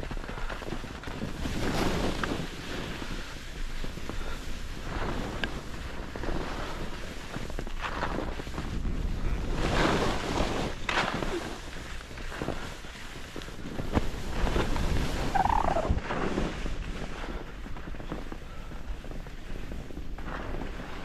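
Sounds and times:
skis scraping across snow: 0:00.0 - 0:21.0
wind buffeting microphone: 0:13.6 - 0:21.0.

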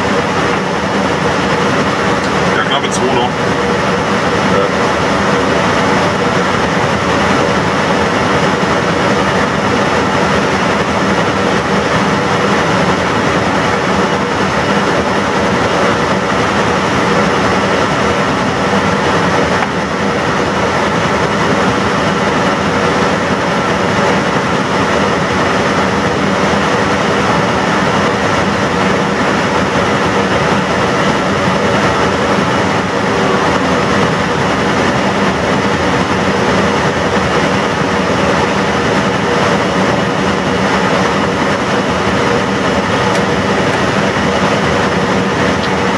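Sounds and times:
low hum: 0:00.0 - 0:45.9.

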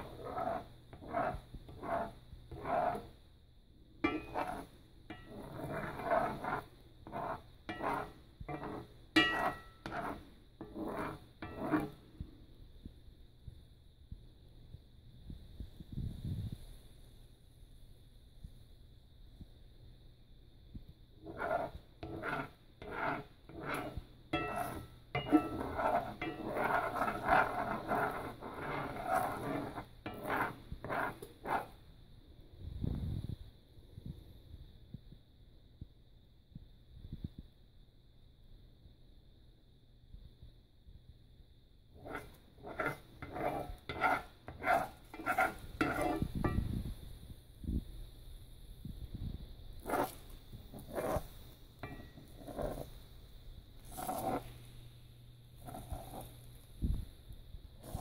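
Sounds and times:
spatula scraping eggs in skillet: 0:00.0 - 0:03.2, 0:04.0 - 0:12.1, 0:21.2 - 0:31.8, 0:42.0 - 0:46.9, 0:49.8 - 0:53.0, 0:53.8 - 0:54.8, 0:55.5 - 0:56.6, 0:57.8 - 0:58.0.

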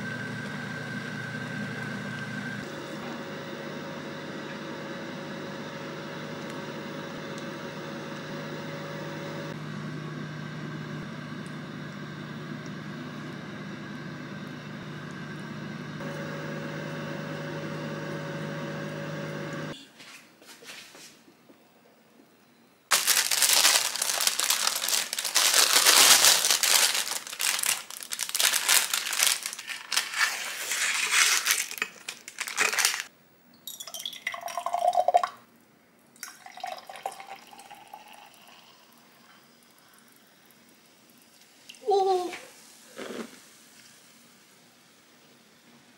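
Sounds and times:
parchment paper crinkling: 0:22.9 - 0:33.1
drink pouring into glass: 0:33.7 - 0:35.4, 0:36.2 - 0:39.2.

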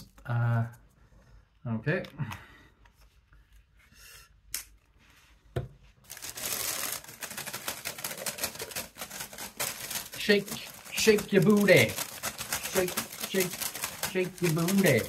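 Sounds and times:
crisps shaken in paper bag: 0:06.1 - 0:15.0.

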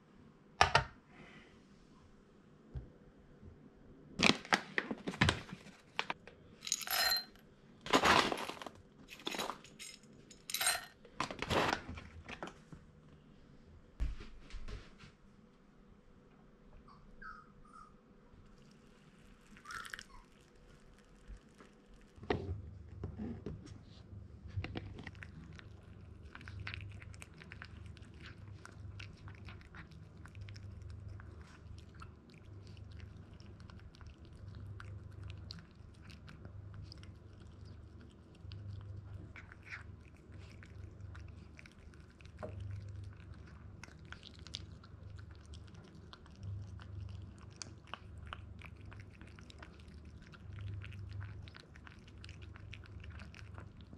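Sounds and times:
puppy chewing kibble: 0:24.6 - 0:53.9.

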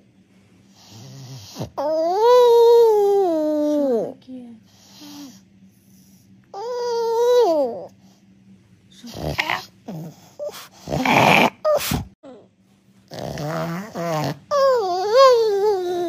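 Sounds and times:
dog snorty huffs: 0:00.7 - 0:01.8, 0:09.0 - 0:12.2, 0:13.1 - 0:14.7
dog grumbling and groaning: 0:00.8 - 0:04.2, 0:06.6 - 0:07.9, 0:09.0 - 0:12.2, 0:13.1 - 0:16.0
dog whining moan: 0:00.8 - 0:04.2, 0:06.5 - 0:08.0, 0:08.9 - 0:12.4, 0:13.1 - 0:16.0.

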